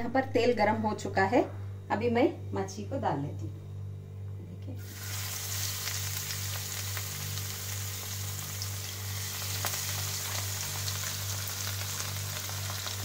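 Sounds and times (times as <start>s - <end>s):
steady low hum: 0.0s - 13.0s
fish sizzling in frying pan: 4.8s - 13.0s.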